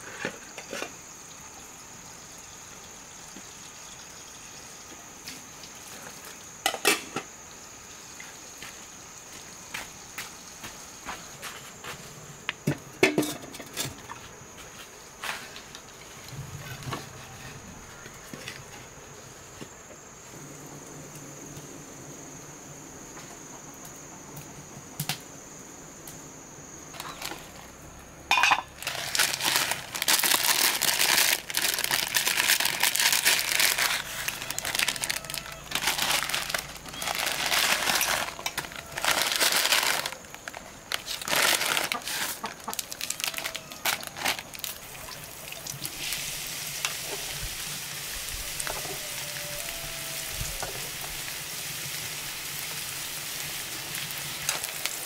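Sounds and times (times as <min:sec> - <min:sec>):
high insect trill: 0:00.0 - 0:55.0
steady hiss: 0:00.0 - 0:55.0
rustling and crinkling: 0:26.9 - 0:27.7, 0:28.4 - 0:46.0, 0:53.9 - 0:55.0.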